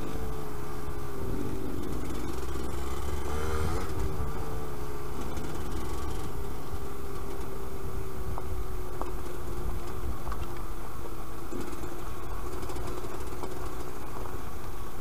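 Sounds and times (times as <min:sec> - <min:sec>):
two-stroke engine running: 0:00.0 - 0:15.0.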